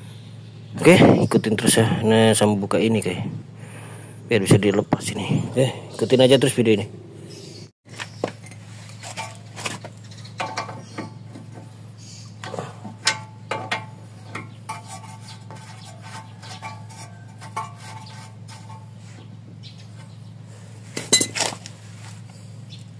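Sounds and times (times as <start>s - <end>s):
low hum: 3.1s - 7.7s, 8.4s - 22.9s
metal tools clinking: 8.3s - 11.7s, 12.4s - 19.0s, 21.0s - 21.7s.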